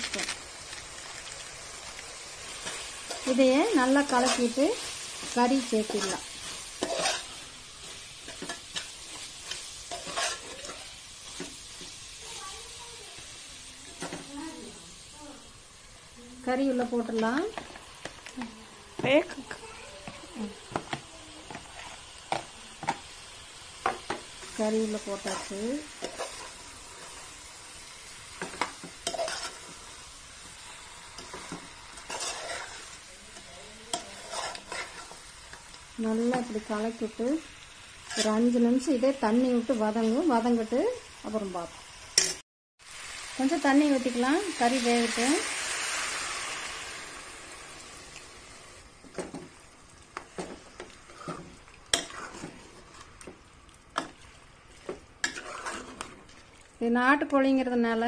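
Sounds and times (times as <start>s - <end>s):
water hissing on hot pan: 0.0s - 57.3s
food sizzling: 0.0s - 58.0s
metal spatula scraping cooker: 2.6s - 11.8s, 28.4s - 29.8s, 31.2s - 32.9s, 33.9s - 35.2s, 50.4s - 53.1s, 54.9s - 56.3s
metal spoon scraping pot: 9.5s - 10.9s, 31.2s - 32.8s, 55.2s - 56.2s.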